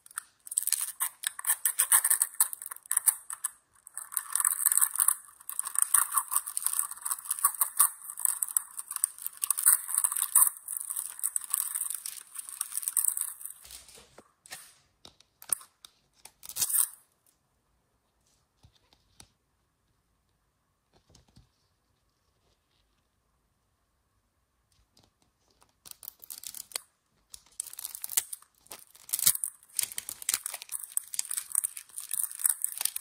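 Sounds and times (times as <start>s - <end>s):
plastic film crinkling and tearing: 0.0s - 14.1s, 25.8s - 33.0s.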